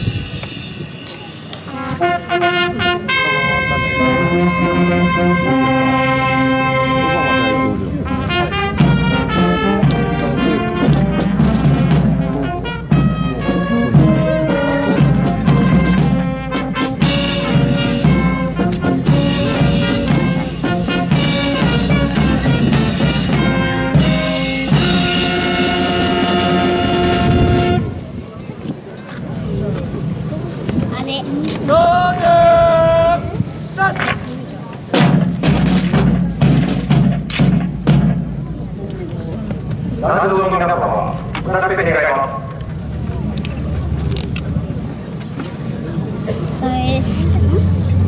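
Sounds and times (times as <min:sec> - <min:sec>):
brass band playing: 0:00.0 - 0:28.2, 0:34.9 - 0:38.6, 0:40.0 - 0:42.6.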